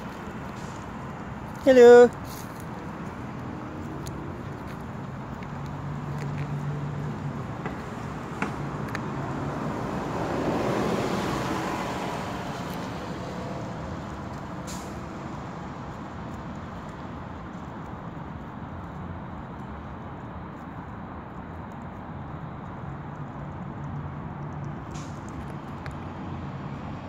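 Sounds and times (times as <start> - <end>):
hum of road traffic: 0.0 - 27.0
vehicle passing close: 2.2 - 16.3.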